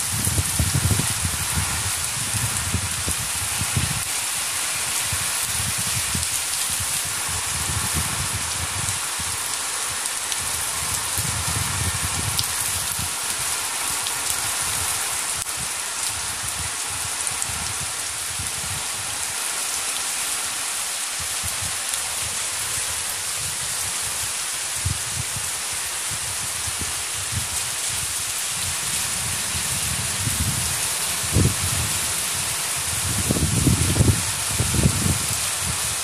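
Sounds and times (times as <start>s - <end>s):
heavy rain falling: 0.0s - 36.0s.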